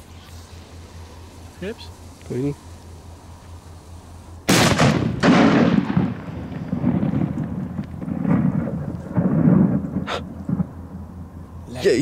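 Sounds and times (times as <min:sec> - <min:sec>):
low rolling rumble and echo: 0:00.0 - 0:12.0
firework bang: 0:04.5 - 0:10.8.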